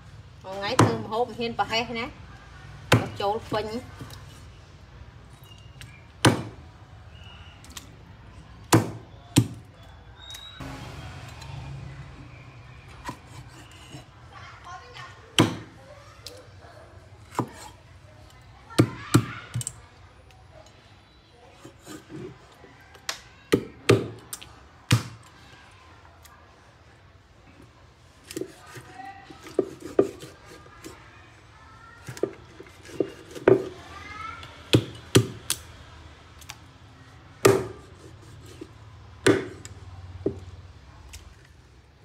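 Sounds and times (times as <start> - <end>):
cleaver chopping ribs on wooden block: 0.7 - 1.1, 6.2 - 6.6, 8.7 - 9.7, 15.4 - 15.8, 34.7 - 35.6, 37.4 - 38.6, 39.2 - 40.4.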